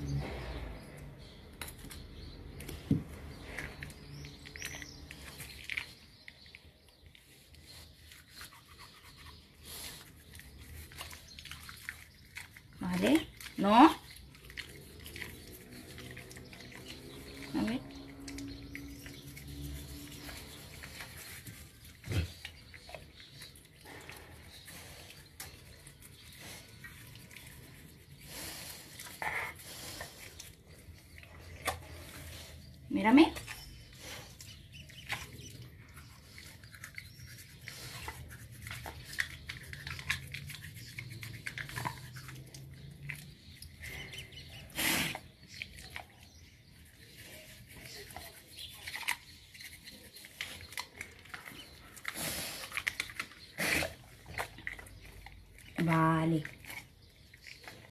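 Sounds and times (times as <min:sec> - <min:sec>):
toothbrush scrubbing teeth: 0:07.6 - 0:28.3, 0:34.5 - 0:44.5.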